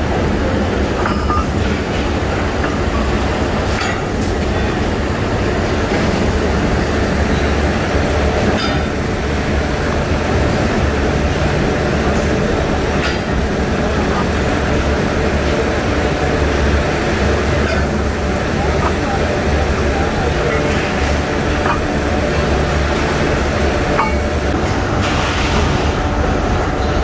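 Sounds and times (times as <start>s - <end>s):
rolling mill machinery rumble: 0.0s - 27.0s
sharp metallic knocks: 8.6s - 9.0s, 17.5s - 24.8s.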